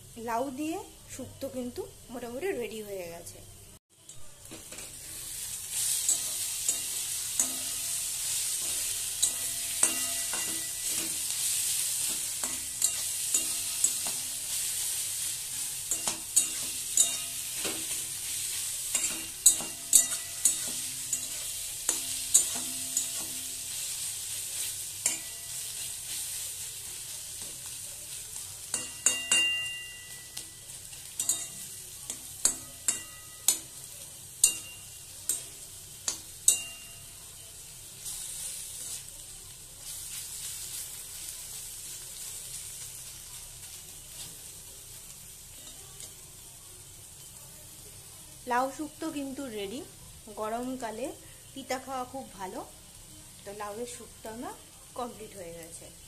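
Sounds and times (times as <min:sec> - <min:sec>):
food sizzling in a pan: 0:00.0 - 0:56.0
spatula scraping a metal pan: 0:04.5 - 0:26.3
spatula clicking on a pan: 0:08.6 - 0:11.3, 0:12.0 - 0:14.4, 0:15.9 - 0:18.1, 0:18.9 - 0:23.5, 0:25.0 - 0:25.4, 0:28.7 - 0:36.9.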